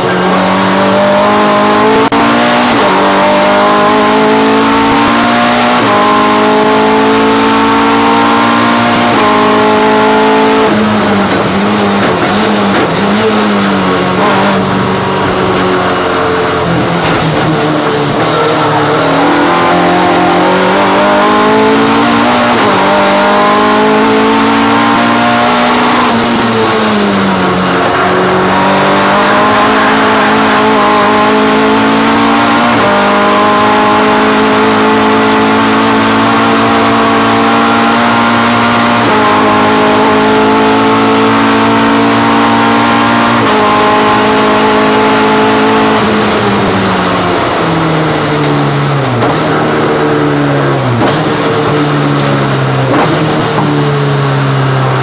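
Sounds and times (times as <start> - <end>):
racing car engine high revs: 0.0 - 55.0.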